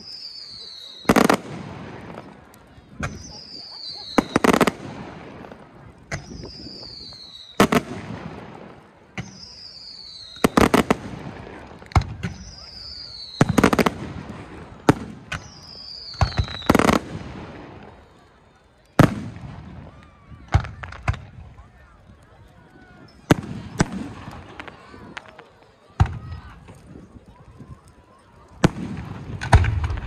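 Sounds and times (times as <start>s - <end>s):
falling firework whistle: 0.0s - 1.5s, 3.0s - 4.9s, 6.2s - 8.0s, 9.2s - 11.0s, 12.0s - 14.0s, 14.8s - 21.1s
fireworks bursting with bangs: 0.0s - 18.2s, 19.0s - 21.8s, 22.8s - 27.2s, 28.5s - 30.0s.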